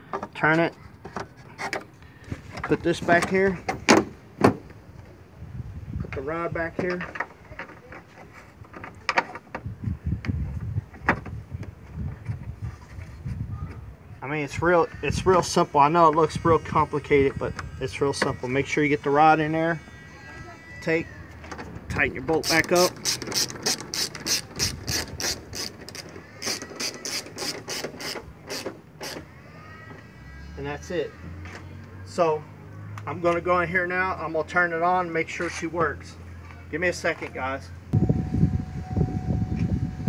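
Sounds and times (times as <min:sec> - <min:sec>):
socket ratchet clicking: 0:22.4 - 0:29.2.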